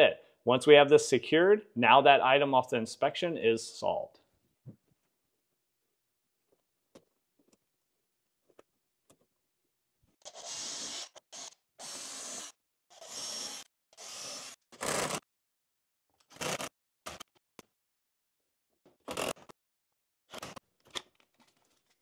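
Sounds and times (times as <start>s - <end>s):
cordless drill boring into wood: 10.2s - 15.2s.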